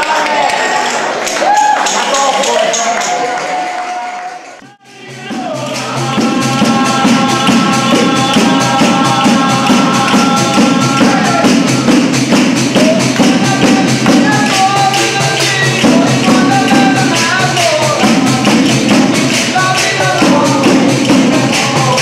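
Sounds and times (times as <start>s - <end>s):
folk dance music: 0.0s - 22.0s
tambourine jingles: 4.8s - 22.0s.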